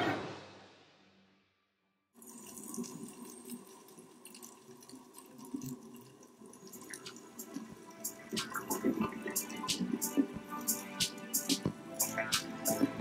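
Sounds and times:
faint hiss of water: 2.2s - 13.0s
crackling clicks underwater: 2.5s - 10.3s.

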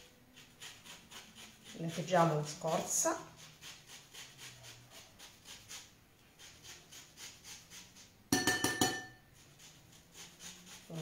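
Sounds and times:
grater rasping zest: 0.0s - 8.2s, 9.2s - 11.0s
grater clinking against bowl: 6.4s - 11.0s.

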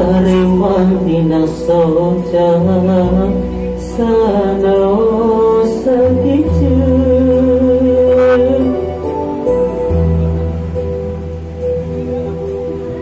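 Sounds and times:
man singing into a microphone: 0.0s - 9.0s
musical accompaniment with bass and beat: 0.0s - 13.0s.

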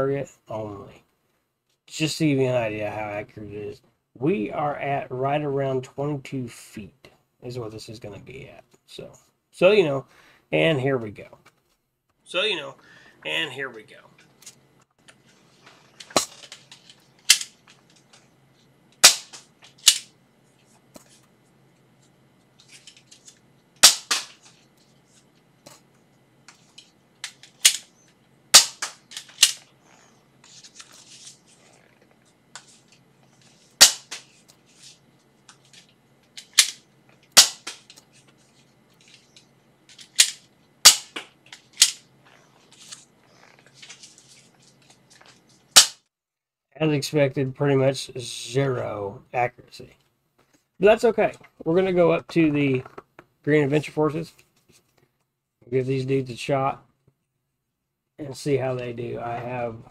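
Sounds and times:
toy blaster plastic snaps: 28.6s - 29.6s
handling and rustling: 41.4s - 45.7s.

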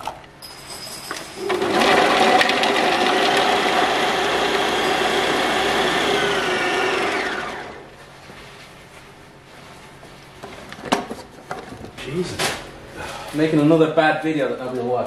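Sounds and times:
food processor chopping: 1.5s - 7.8s.

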